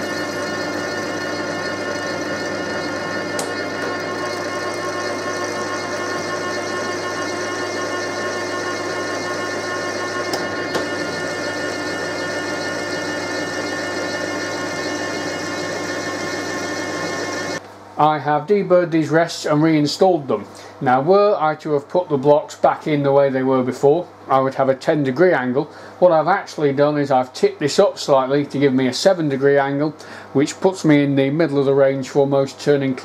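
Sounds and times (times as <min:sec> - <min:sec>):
milling machine hum and whine: 0:00.0 - 0:17.6.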